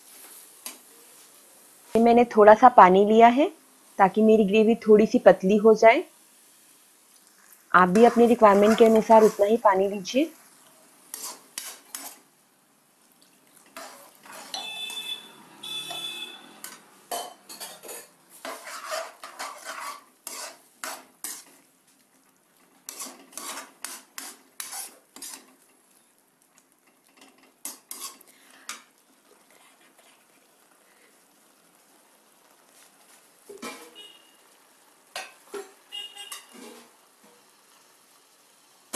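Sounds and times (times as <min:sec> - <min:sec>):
metal ladle scraping metal pan: 0:07.8 - 0:09.9, 0:11.1 - 0:12.2, 0:13.7 - 0:21.6, 0:22.9 - 0:25.6, 0:27.6 - 0:28.2, 0:33.5 - 0:34.2, 0:35.2 - 0:36.9
short ringing tone: 0:14.5 - 0:16.5.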